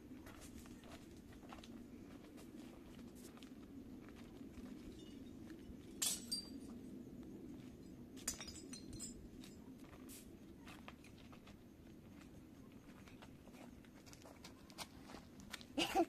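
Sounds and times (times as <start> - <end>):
low background hum: 0.0 - 16.0.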